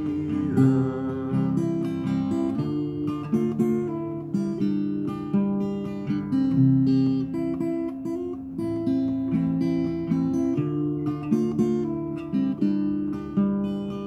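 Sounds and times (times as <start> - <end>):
acoustic guitar strummed chords: 0.0 - 14.0.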